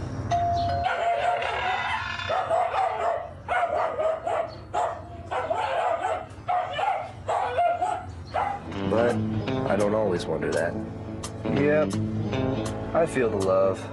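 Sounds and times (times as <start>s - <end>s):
dog barking and yipping: 0.8s - 8.7s.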